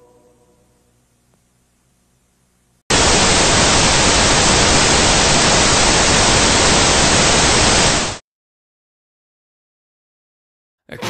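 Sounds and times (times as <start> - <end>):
television static hiss: 1.0 - 8.2.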